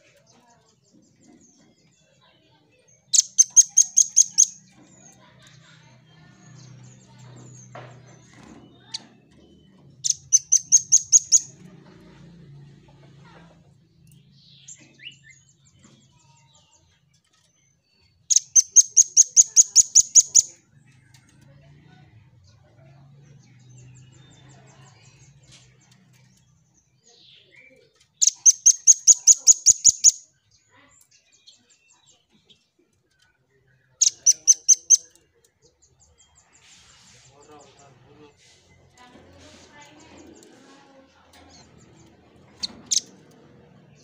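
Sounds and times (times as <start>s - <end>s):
bird calling sharp high notes: 28.2s - 30.2s.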